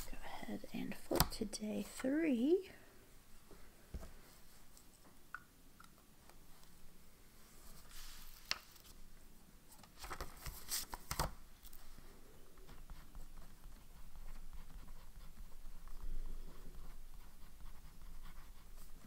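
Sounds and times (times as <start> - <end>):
notepad pages flipping: 7.8 - 9.0, 9.7 - 11.8.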